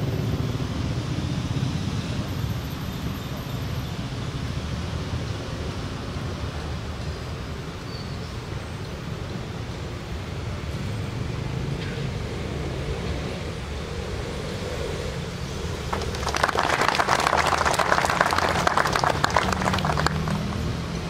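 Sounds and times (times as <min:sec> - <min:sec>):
audience applause: 0:15.8 - 0:20.9.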